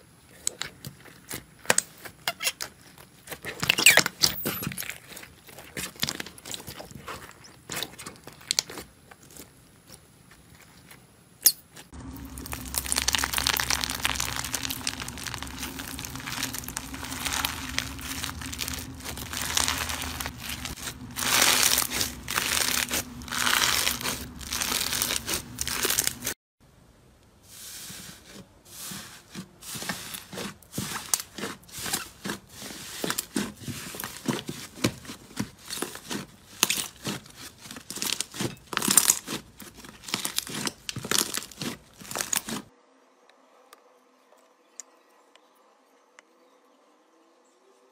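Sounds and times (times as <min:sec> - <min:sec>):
hands squeezing crackling slime: 0:12.0 - 0:26.4, 0:32.8 - 0:42.7
steady low hum: 0:12.0 - 0:26.4.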